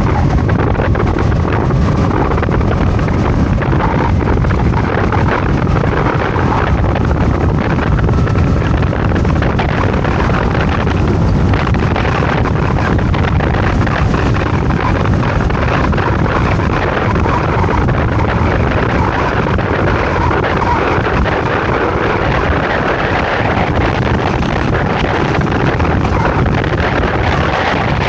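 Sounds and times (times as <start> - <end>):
road noise: 0.0 - 28.0
scooter engine running: 0.0 - 28.0
wind buffeting microphone: 0.0 - 28.0.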